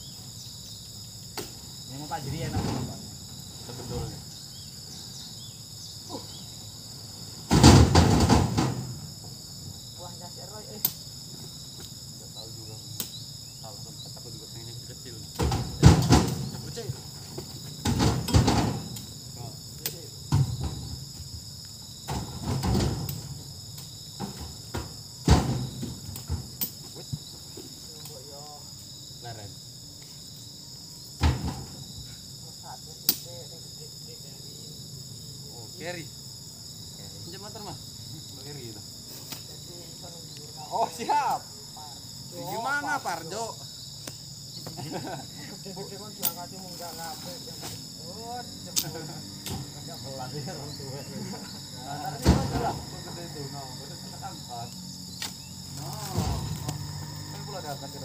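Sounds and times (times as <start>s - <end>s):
high insect drone: 0.0s - 58.0s
fruit bunches thudding into truck: 2.2s - 4.2s, 7.4s - 9.2s, 15.3s - 19.0s, 22.0s - 23.5s, 24.1s - 26.6s, 31.2s - 31.9s, 51.2s - 53.0s, 55.2s - 56.8s.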